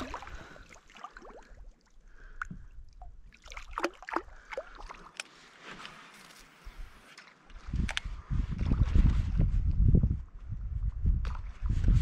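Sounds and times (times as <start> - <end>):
water splashing around kayak: 0.0 - 6.1.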